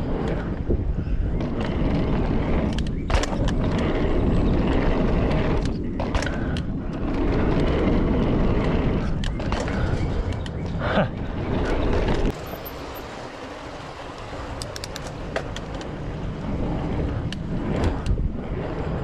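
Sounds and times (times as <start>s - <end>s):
wind on microphone: 0.0s - 12.4s, 14.3s - 19.0s
bike clicks and rattles: 0.0s - 19.0s
bike tyre rumble: 0.0s - 19.0s.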